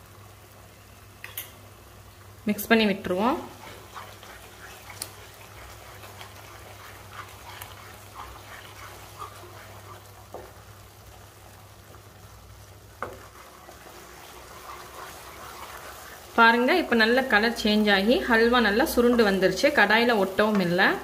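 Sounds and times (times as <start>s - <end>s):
spatula scraping and tapping a pan: 3.4s - 10.7s, 13.0s - 16.3s.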